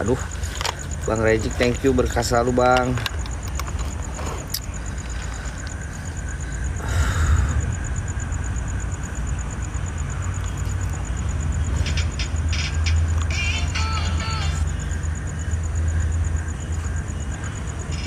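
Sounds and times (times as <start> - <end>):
pulsing insect trill: 0.0 - 18.0
low rumble: 5.6 - 10.3.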